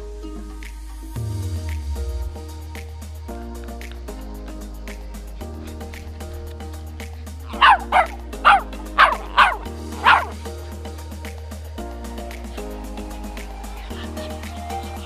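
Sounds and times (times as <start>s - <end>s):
small dog barking: 7.5s - 10.4s.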